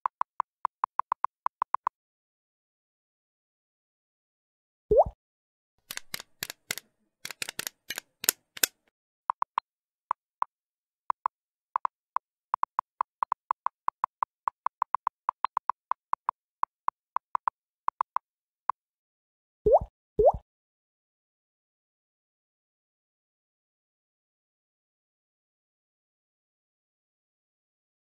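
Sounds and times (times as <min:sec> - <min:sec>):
sharp typing clicks: 0:05.9 - 0:08.7.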